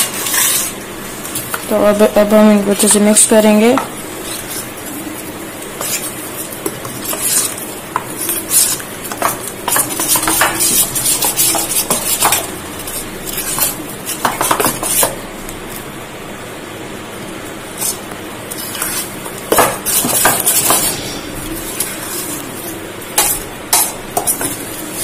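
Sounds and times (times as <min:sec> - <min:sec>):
metal spoon scraping steel bowl: 0:00.0 - 0:00.8, 0:19.8 - 0:25.0.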